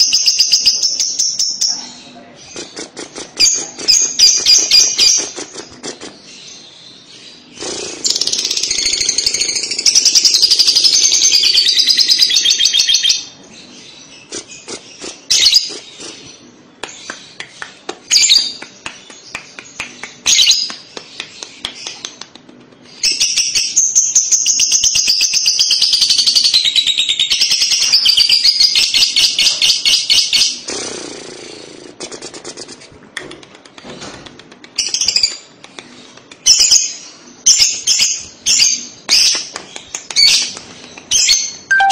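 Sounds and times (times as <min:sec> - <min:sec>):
lovebird chattering song: 0:00.0 - 0:32.9, 0:34.7 - 0:41.9
bird chirps and clicks: 0:14.3 - 0:23.2, 0:32.1 - 0:36.9, 0:37.6 - 0:41.9.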